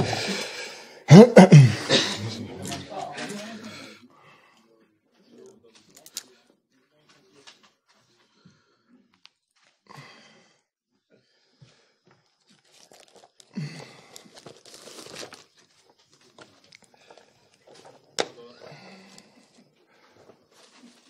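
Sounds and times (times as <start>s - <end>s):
rustling and handling noises: 12.1s - 21.0s.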